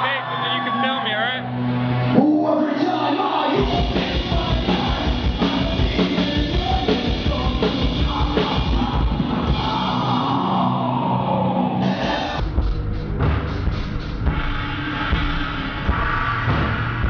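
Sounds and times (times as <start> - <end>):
heavy rock band music: 0.0 - 17.0.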